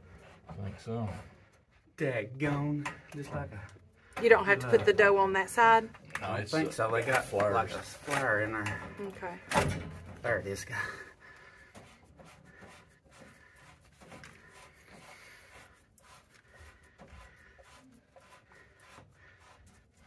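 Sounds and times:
scratching on copper pipe fittings: 0.0 - 20.0.

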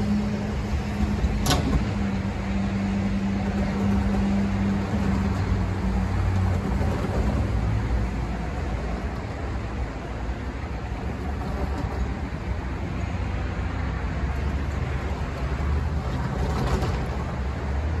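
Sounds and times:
cars driving by: 0.0 - 18.0.

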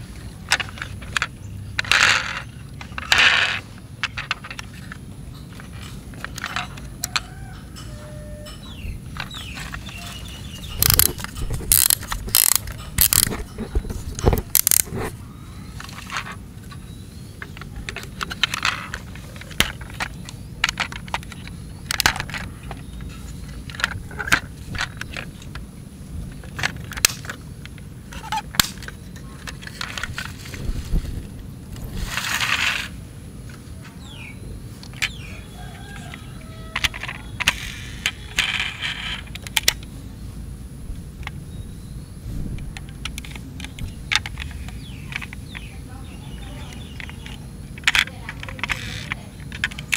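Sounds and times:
plastic toy clicks and rattles: 0.4 - 7.3, 9.1 - 15.1, 17.4 - 25.6, 26.3 - 31.1, 34.8 - 39.9, 42.8 - 45.7, 46.4 - 49.9
rustling: 28.0 - 33.8.

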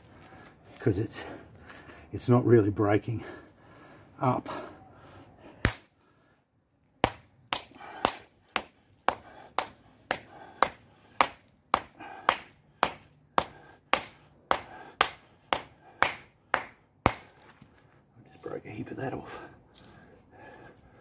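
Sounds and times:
hammer striking stone: 7.0 - 17.4.

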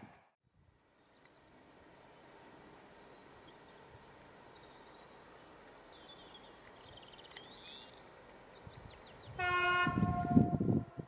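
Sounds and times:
small birds chirping: 0.4 - 9.4
train horn: 9.4 - 11.0.

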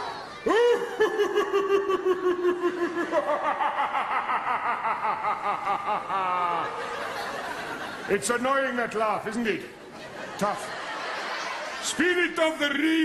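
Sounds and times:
high-pitched theatrical laugh: 0.4 - 8.1.

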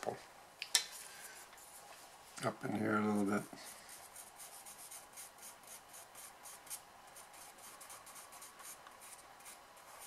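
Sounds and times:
pencil scratching on paper: 3.7 - 10.0.

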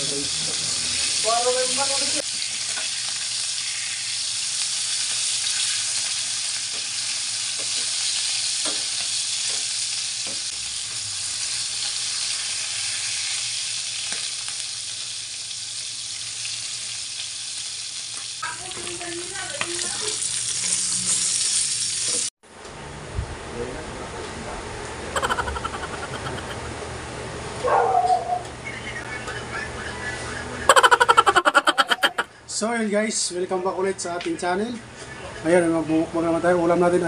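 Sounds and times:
fish sizzling in hot oil: 0.0 - 22.3.

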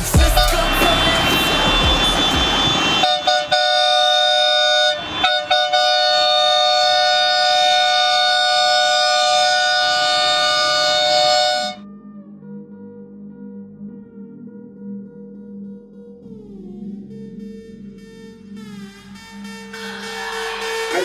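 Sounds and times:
air horns chord: 0.0 - 11.8, 19.0 - 21.0.

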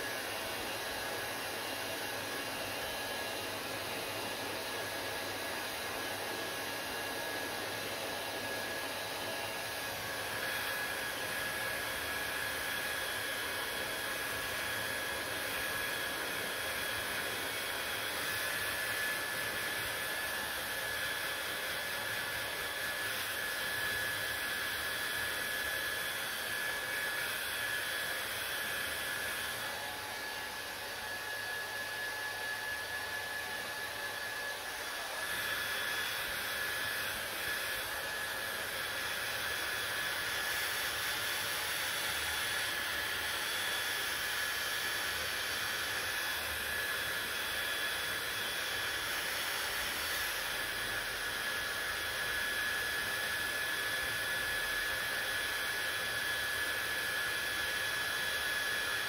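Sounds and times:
hair dryer running: 0.0 - 59.0.

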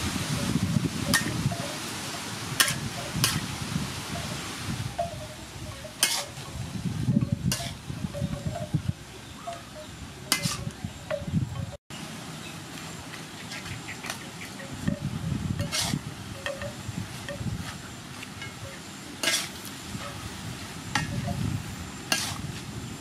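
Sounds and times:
metal spatula scraping a wok: 5.2 - 6.6, 7.4 - 7.8, 10.3 - 10.8, 15.6 - 20.2, 22.1 - 22.6.

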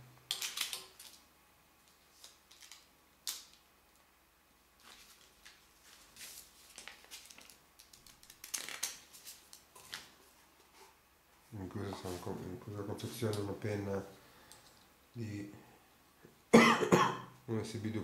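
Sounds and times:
packaging rustling: 4.8 - 10.2.

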